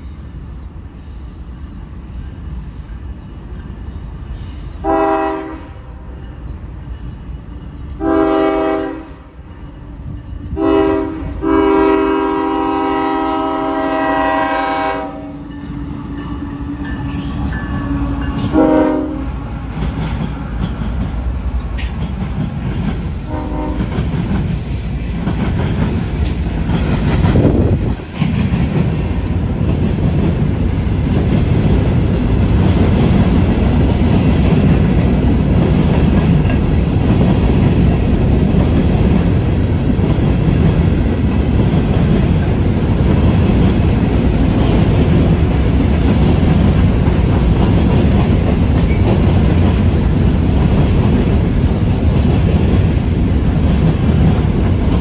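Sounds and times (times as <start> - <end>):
train wheels rumbling on rail: 0.0 - 55.0
locomotive air horn: 4.8 - 5.8, 8.0 - 9.3, 10.6 - 15.4, 18.4 - 19.4, 23.3 - 23.9.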